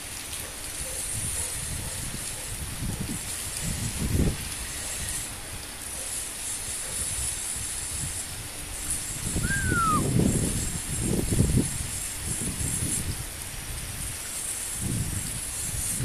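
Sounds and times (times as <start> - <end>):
heavy rain hissing: 0.0 - 16.0
short falling whistle: 9.4 - 10.1.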